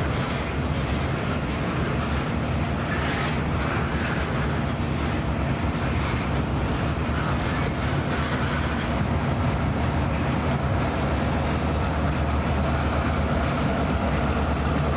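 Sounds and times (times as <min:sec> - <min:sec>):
diesel locomotive running: 0:00.0 - 0:14.9
train wheels rolling on rails: 0:00.0 - 0:14.9.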